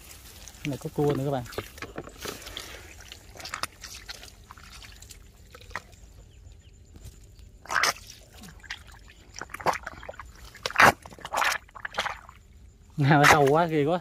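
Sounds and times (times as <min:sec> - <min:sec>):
drips and small wet sounds: 0:00.0 - 0:14.0
water splash: 0:07.6 - 0:12.4.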